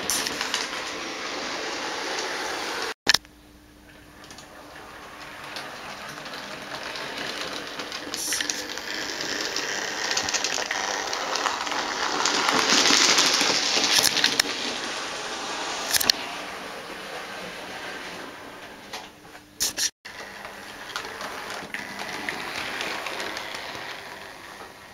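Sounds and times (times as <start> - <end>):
model train rattling on track: 4.3 - 19.1, 20.1 - 24.9.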